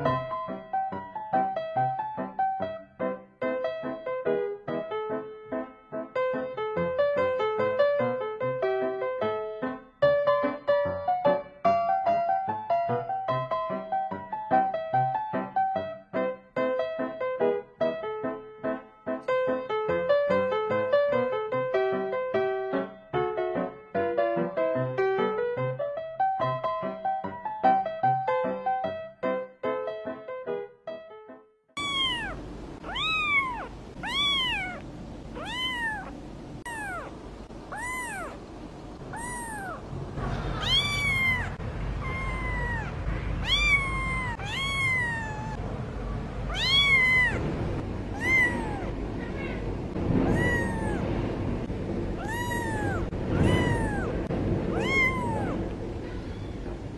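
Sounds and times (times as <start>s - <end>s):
kitten mewing: 31.8s - 38.4s, 39.0s - 45.7s, 46.4s - 51.1s, 52.2s - 56.6s.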